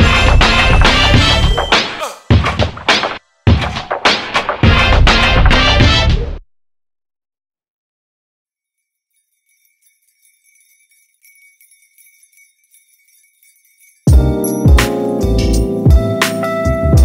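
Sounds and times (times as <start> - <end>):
background music: 0.0 - 6.4, 14.1 - 17.0
high bell-like tinkling: 0.1 - 1.8, 8.6 - 15.6.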